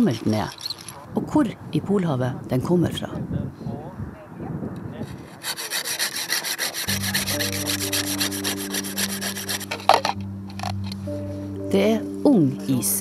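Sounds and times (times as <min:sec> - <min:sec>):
handsaw rasping through ice: 0:05.0 - 0:10.2
low music drone: 0:06.9 - 0:13.0.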